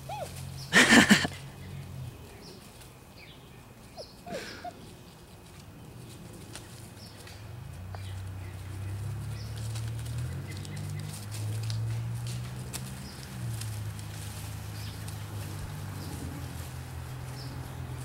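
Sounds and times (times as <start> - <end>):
birds chirping: 0.0 - 18.0
puppies scuffling in dry leaves: 0.0 - 18.0
puppy squeaks: 0.1 - 0.3.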